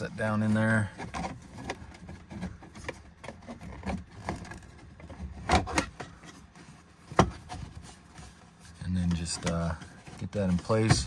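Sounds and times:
plastic clicks and rubbing: 9.0s - 11.0s.

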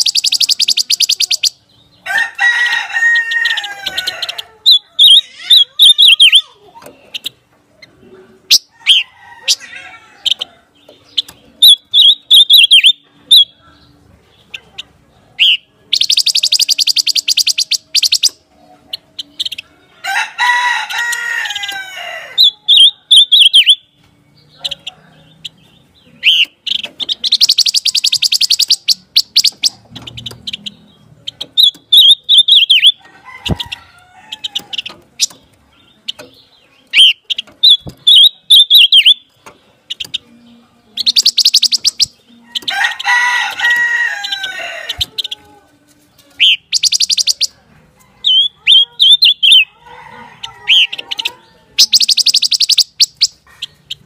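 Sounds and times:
bird whistled phrases: 0.0s - 1.6s, 4.7s - 6.5s, 11.6s - 13.6s, 15.4s - 18.4s, 26.2s - 29.8s, 36.9s - 39.3s, 41.0s - 42.7s, 46.4s - 47.6s, 48.2s - 49.7s, 50.7s - 53.4s.

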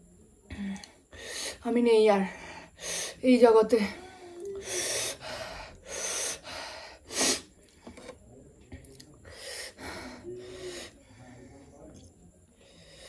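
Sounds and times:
woman hissing breaths: 4.0s - 7.4s.

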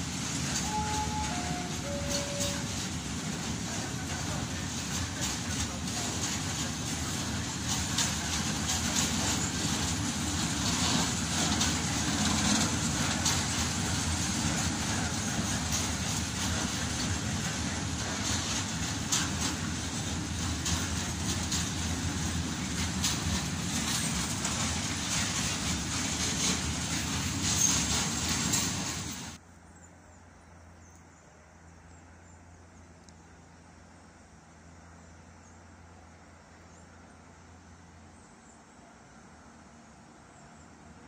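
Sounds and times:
freight train rumbling past: 0.0s - 29.4s
wheels clicking over rail joints: 0.0s - 29.4s.

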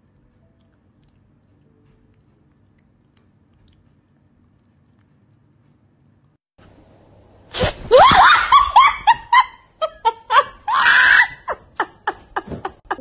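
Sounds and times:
person shrieking and laughing: 7.8s - 13.0s.

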